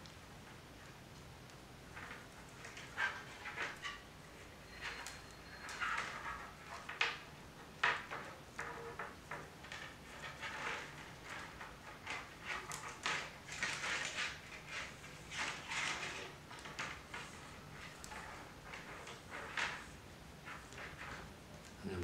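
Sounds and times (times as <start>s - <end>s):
willow rods rustling and scraping: 1.8s - 22.0s.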